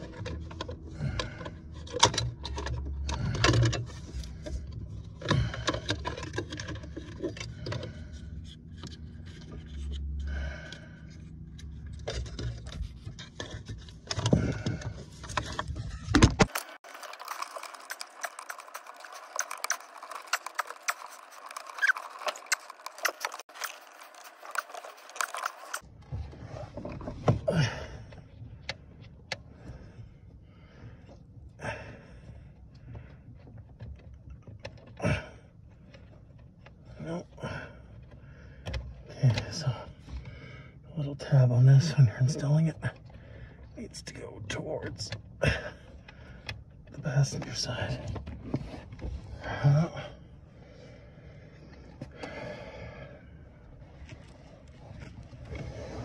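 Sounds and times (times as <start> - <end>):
hands handling small parts: 11.1 - 25.8.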